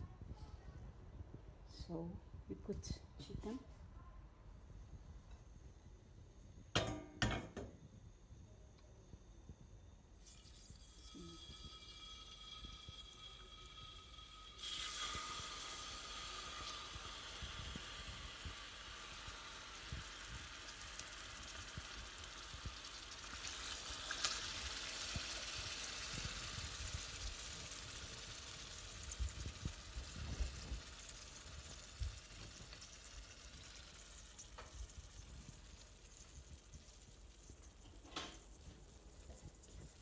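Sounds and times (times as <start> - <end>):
chicken sizzling in a pan: 10.9 - 40.0.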